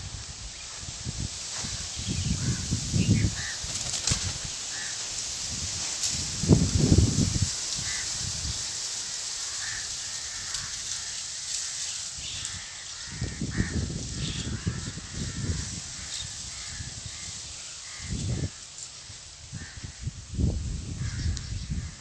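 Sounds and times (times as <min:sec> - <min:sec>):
wind blowing: 0:00.0 - 0:22.0
crows cawing: 0:02.2 - 0:05.5, 0:07.7 - 0:08.4, 0:09.0 - 0:20.2, 0:21.0 - 0:22.0.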